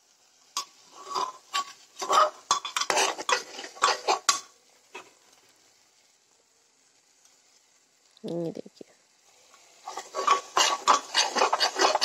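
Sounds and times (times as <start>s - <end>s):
metal spoon scraping cookware: 1.0s - 4.4s, 9.9s - 12.0s.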